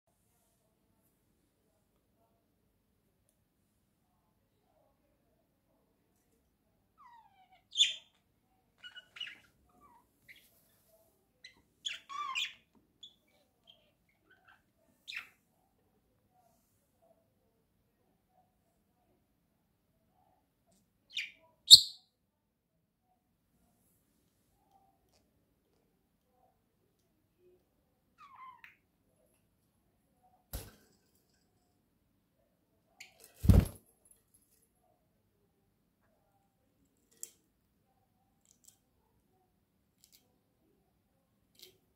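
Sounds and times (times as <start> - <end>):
budgerigar chirp: 21.1 - 22.0
budgerigar chirping: 21.7 - 22.0.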